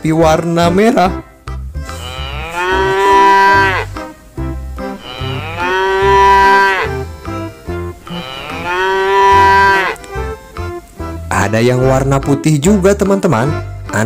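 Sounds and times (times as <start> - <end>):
quiet background music: 0.0 - 14.0
cow mooing: 1.8 - 4.2, 4.8 - 10.1.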